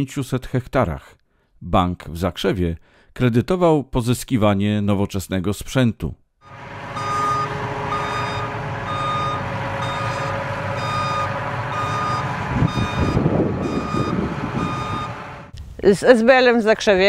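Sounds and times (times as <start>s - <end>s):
engine running: 6.4s - 15.5s
reversing alarm beeping: 6.4s - 15.5s.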